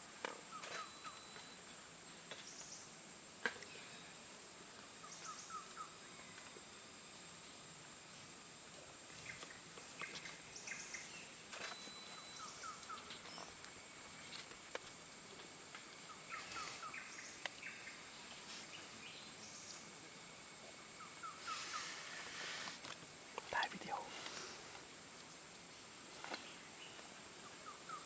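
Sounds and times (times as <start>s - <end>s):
bird chirping: 0.5s - 1.6s, 5.0s - 6.5s, 9.1s - 14.4s, 16.0s - 19.9s, 26.4s - 28.0s
high-pitched insect drone: 9.2s - 14.5s.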